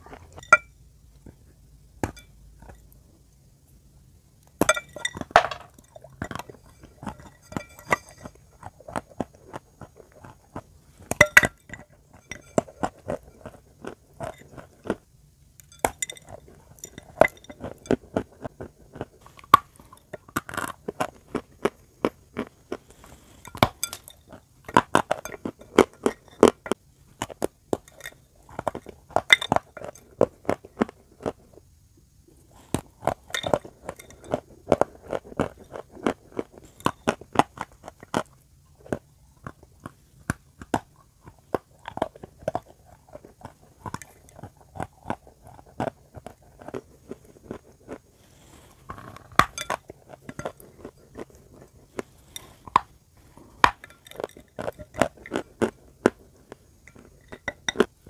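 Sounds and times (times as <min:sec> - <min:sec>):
pieces clinking against bowl: 0:00.3 - 0:00.7, 0:04.6 - 0:08.4, 0:49.4 - 0:50.6
crunchy chewing: 0:04.6 - 0:31.7, 0:32.4 - 0:58.0.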